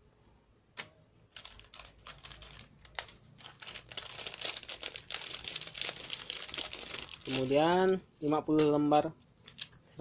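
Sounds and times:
plastic bag crinkling: 1.3s - 8.0s, 9.4s - 9.9s.

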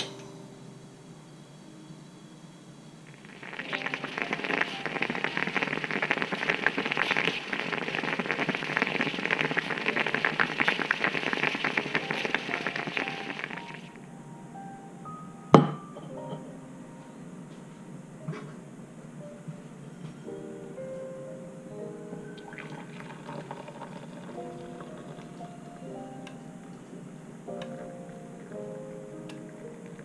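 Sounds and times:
moka pot sputtering and gurgling: 3.2s - 13.9s, 22.5s - 25.3s.

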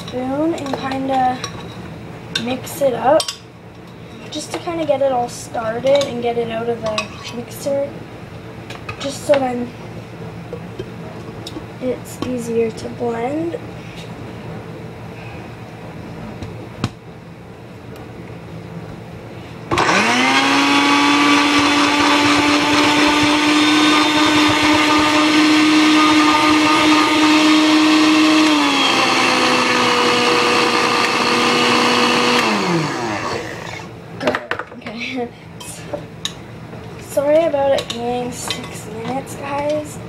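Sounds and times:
blender motor whining: 19.7s - 33.9s.

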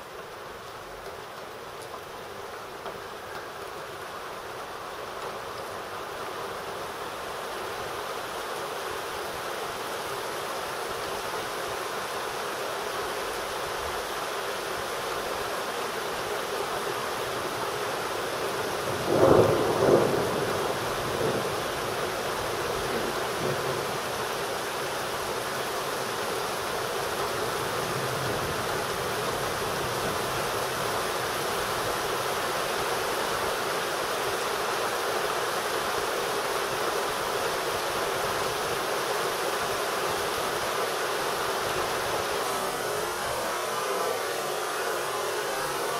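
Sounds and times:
steady rain falling: 0.0s - 45.9s
thunder cracking and rumbling: 18.8s - 21.6s.

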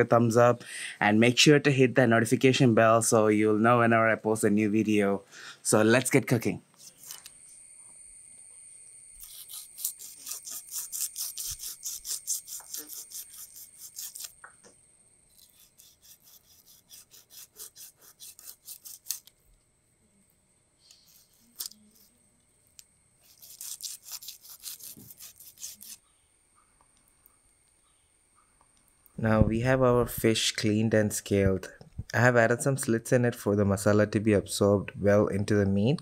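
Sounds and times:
knife scraping fish scales: 6.8s - 7.4s, 9.2s - 14.4s, 15.3s - 19.3s, 20.9s - 22.2s, 23.2s - 26.1s.

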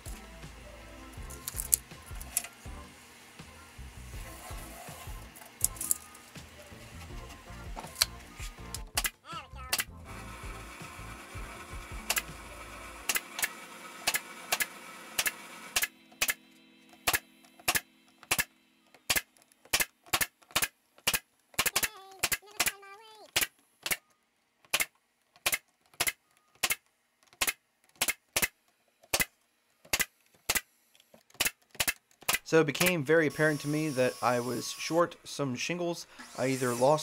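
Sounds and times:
brad nailer firing: 12.0s - 12.4s, 13.0s - 16.4s, 17.0s - 24.0s, 24.7s - 30.7s, 31.3s - 34.6s.

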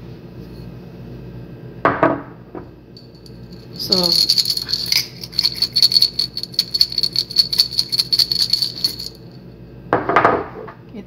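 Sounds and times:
salt grains rattling in shaker: 3.0s - 9.4s.

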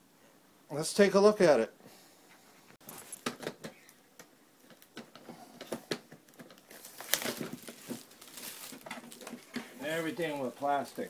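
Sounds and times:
plastic wrap crinkling: 6.2s - 11.0s.

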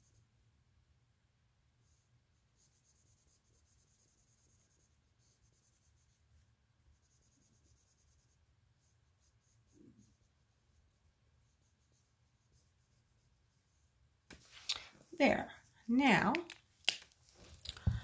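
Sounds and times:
marker rubbing on whiteboard: 2.6s - 6.2s.

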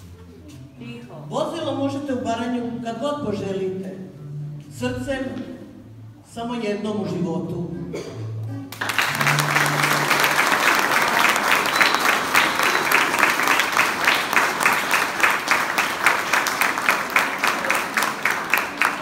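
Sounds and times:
audience applauding: 8.7s - 19.0s.

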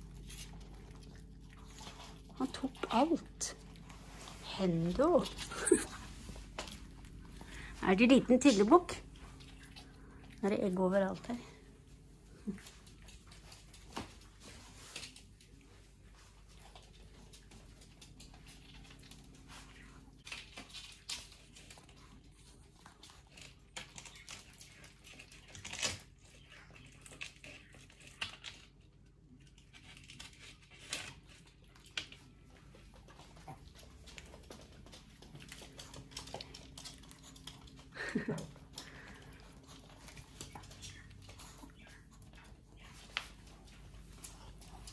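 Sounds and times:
dog claws clicking on floor: 12.6s - 44.9s.

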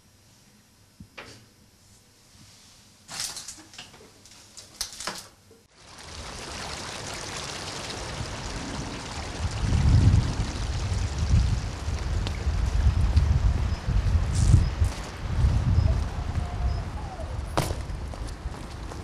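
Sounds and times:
steady rushing noise: 5.7s - 19.0s
wind rumbling on microphone: 5.9s - 19.0s.

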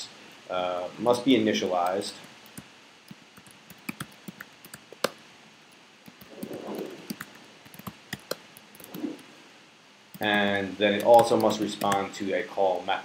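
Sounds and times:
keyboard typing: 3.4s - 5.2s, 6.1s - 9.2s.

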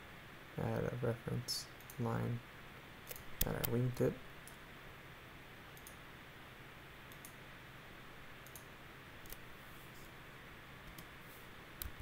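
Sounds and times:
steady low hiss: 0.0s - 12.0s
computer mouse clicks: 3.0s - 3.8s, 5.8s - 6.0s, 7.1s - 7.4s, 8.4s - 9.4s, 10.8s - 11.1s.

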